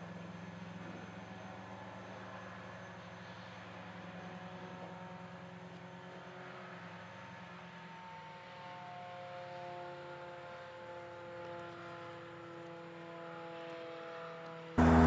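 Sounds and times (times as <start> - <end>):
high steady tones: 14.8 - 15.0
low mechanical hum: 14.8 - 15.0.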